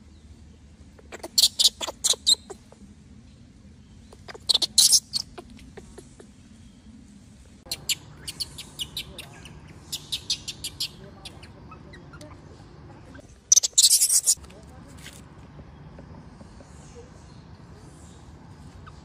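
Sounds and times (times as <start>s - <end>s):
infant monkey squealing: 1.0s - 2.8s, 4.2s - 6.3s, 7.7s - 12.4s, 13.5s - 14.4s, 18.8s - 19.0s.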